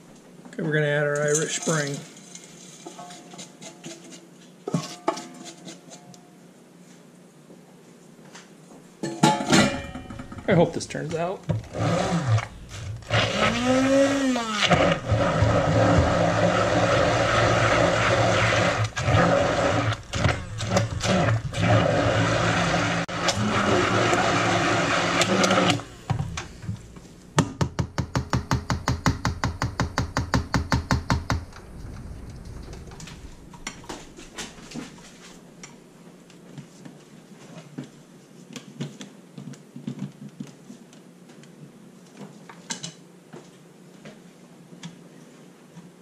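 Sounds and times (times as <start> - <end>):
stick blender running: 11.5 - 26.9.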